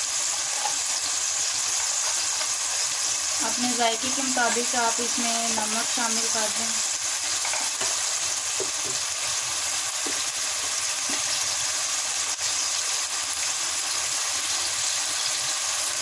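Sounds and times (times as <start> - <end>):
onions and tomatoes sizzling in oil: 0.0 - 16.0.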